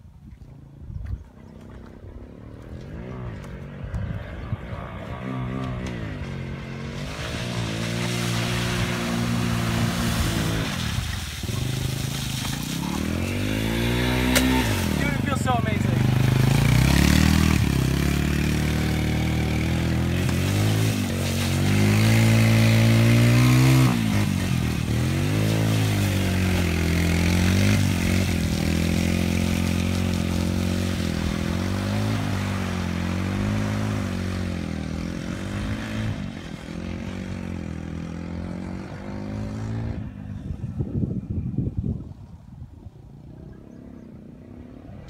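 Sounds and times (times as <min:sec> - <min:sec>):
atv engine revving: 0:02.1 - 0:40.8.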